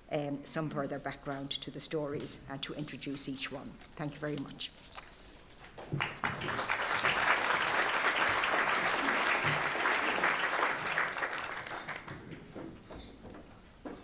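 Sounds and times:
audience applauding: 5.8 - 12.5.

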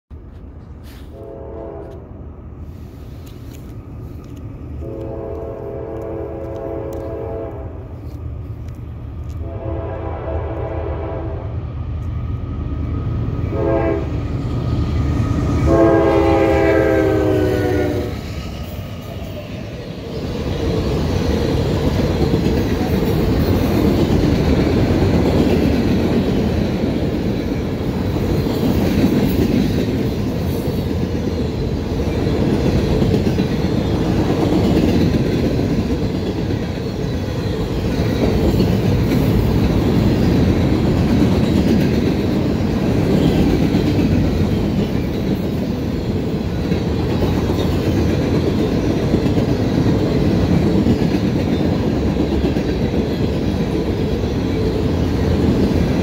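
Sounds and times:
train air horn: 0.8 - 2.1, 4.8 - 7.9, 9.4 - 11.5, 13.5 - 14.2, 15.7 - 18.3
train wheels clickety-clack: 3.1 - 9.6, 11.9 - 56.0.

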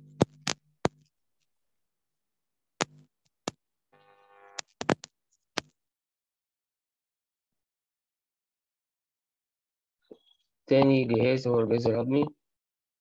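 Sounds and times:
faint steady hum: 4.0 - 4.9.

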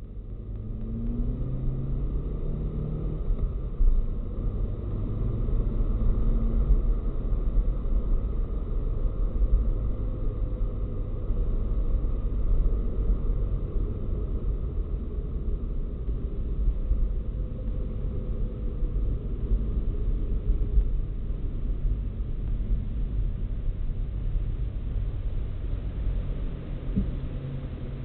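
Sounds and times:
car road and engine rumble: 0.0 - 28.0
short thump: 26.9 - 27.2.

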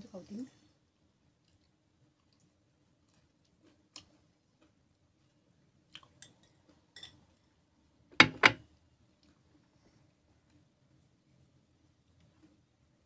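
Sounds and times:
dishware knocking on table: 8.2 - 8.6.

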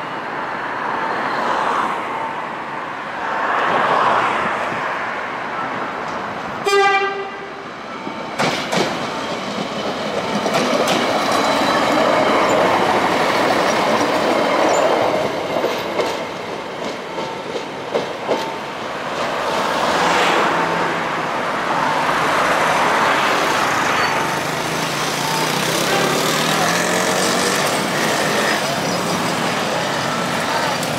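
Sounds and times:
railcar horn blast: 6.6 - 7.6, 25.2 - 26.9
railcar engine running: 7.3 - 20.2, 21.1 - 30.9
wheels clicking over rail joints: 8.4 - 18.6.

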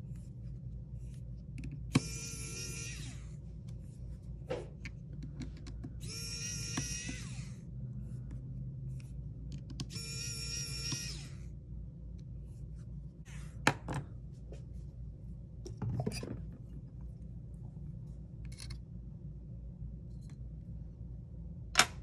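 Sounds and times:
electric screwdriver whirring: 2.0 - 3.2, 6.0 - 7.6, 9.9 - 11.4.

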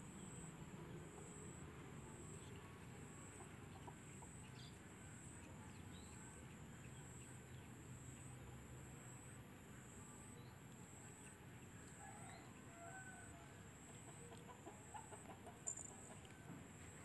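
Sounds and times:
distant hen clucks: 1.1 - 5.4, 12.0 - 17.0.

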